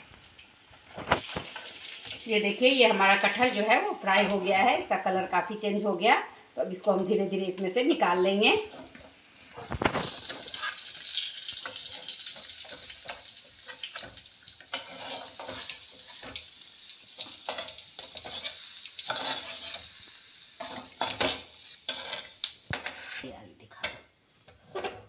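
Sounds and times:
food sizzling in hot oil: 0:00.0 - 0:05.6, 0:06.8 - 0:25.0
spatula scraping pan: 0:08.7 - 0:16.6, 0:17.2 - 0:20.0, 0:20.6 - 0:25.0.

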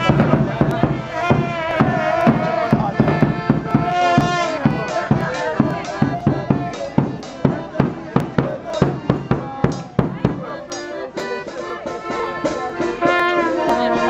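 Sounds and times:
bass drum beating: 0:00.0 - 0:10.8
instruments playing a tune: 0:00.0 - 0:14.0.

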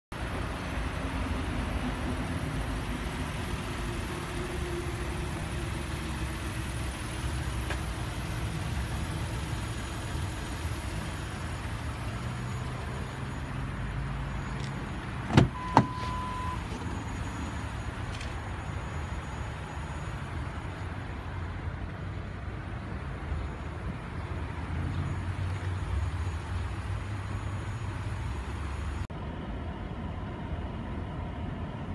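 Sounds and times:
low outdoor rumble: 0:00.2 - 0:31.9
car door clicks opening: 0:15.3 - 0:16.8
electronic car chime: 0:15.4 - 0:20.4.

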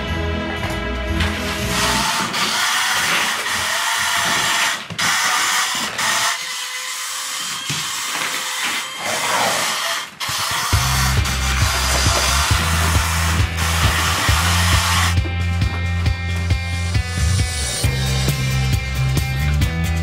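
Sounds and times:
toy car motor whirring: 0:01.7 - 0:15.2
background music with bass beat: 0:10.8 - 0:20.0.

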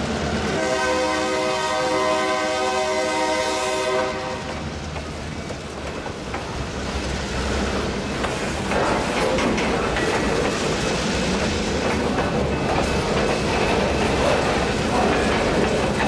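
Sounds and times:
freight cars rolling on rails: 0:00.0 - 0:16.0
locomotive air horn: 0:00.5 - 0:04.6.

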